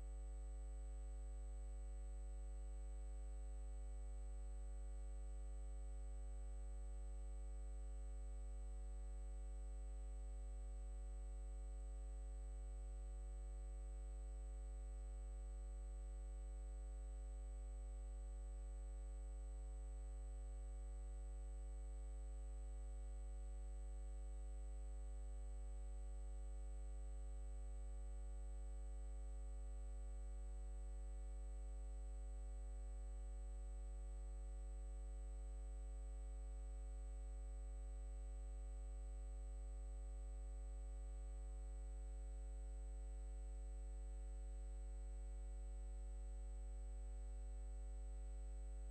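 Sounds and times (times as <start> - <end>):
faint high-pitched whine: 0.0 - 48.9.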